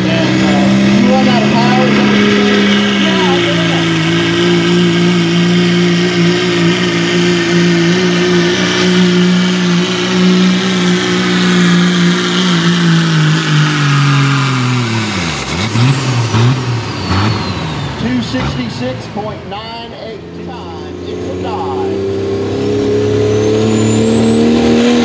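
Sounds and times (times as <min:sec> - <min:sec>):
diesel engine at full throttle: 0:00.0 - 0:25.0
high turbo whine: 0:00.0 - 0:25.0.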